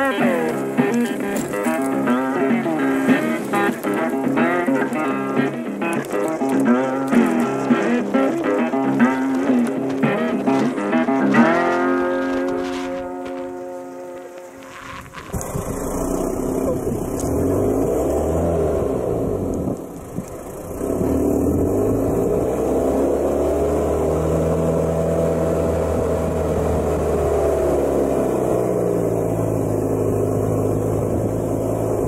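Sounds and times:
engine revving inside cab: 0:15.3 - 0:32.0.

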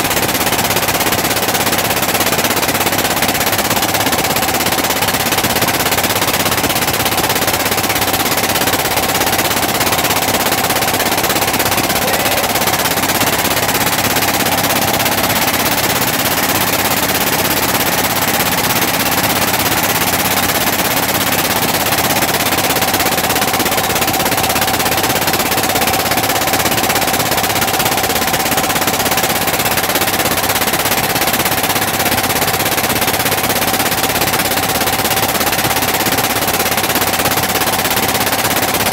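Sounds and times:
boat engine chugging: 0:00.0 - 0:38.9
engine whine: 0:09.3 - 0:19.4.

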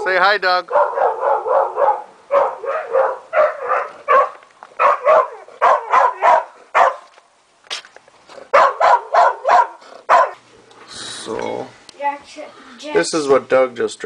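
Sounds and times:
dog barking: 0:00.7 - 0:07.1, 0:08.5 - 0:10.4.

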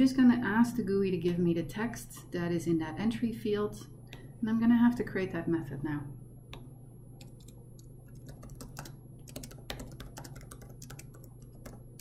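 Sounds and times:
steady low hum: 0:00.0 - 0:12.0
typing on computer keyboard: 0:07.2 - 0:12.0.

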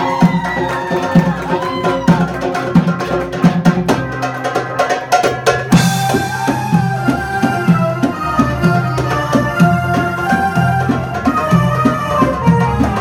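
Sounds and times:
darbuka drum beating: 0:00.0 - 0:13.0
violin sliding melody: 0:05.9 - 0:13.0.

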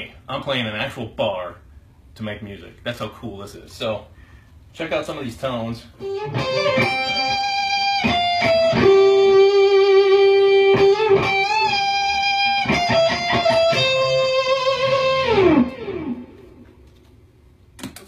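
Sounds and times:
electric guitar lead line: 0:06.0 - 0:16.8.

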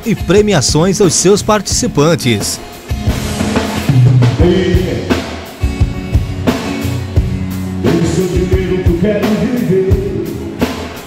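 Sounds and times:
drum kit beat: 0:00.0 - 0:11.0
acoustic guitar: 0:01.6 - 0:11.0
man singing: 0:04.4 - 0:05.2, 0:07.8 - 0:10.8.

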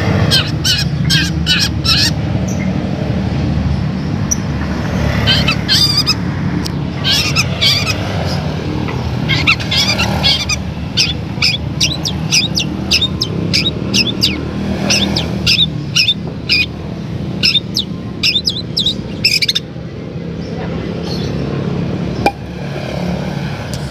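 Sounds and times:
bird chirping: 0:00.2 - 0:02.8, 0:04.0 - 0:06.2, 0:06.9 - 0:19.7.

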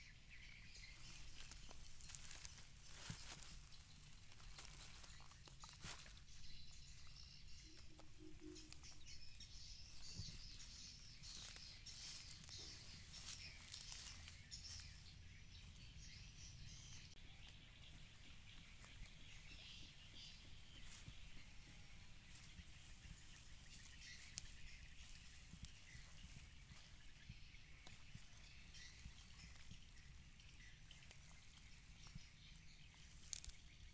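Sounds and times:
birds chirping: 0:00.0 - 0:33.9.

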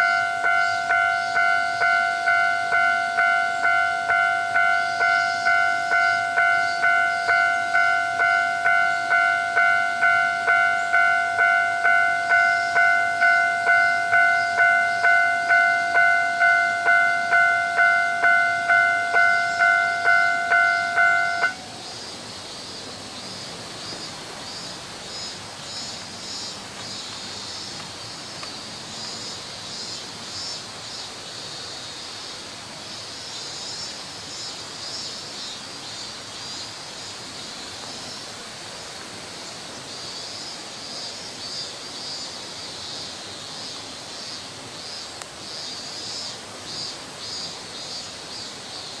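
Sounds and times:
level-crossing alarm ringing: 0:00.0 - 0:21.8
steady high pulsing hiss: 0:00.0 - 0:49.0.

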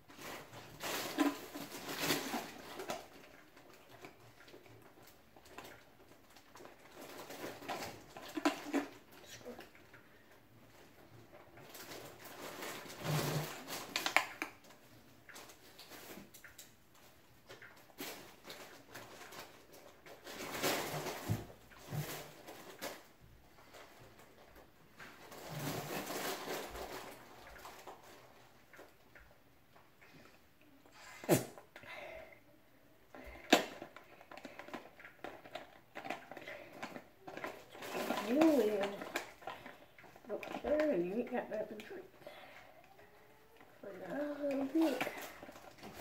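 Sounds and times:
plastic bottle popping: 0:31.2 - 0:31.6.

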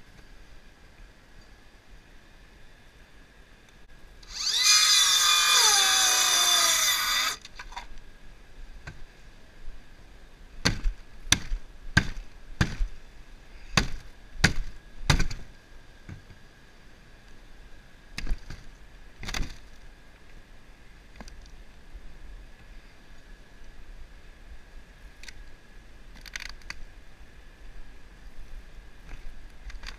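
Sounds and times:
cordless drill running: 0:04.2 - 0:07.4.

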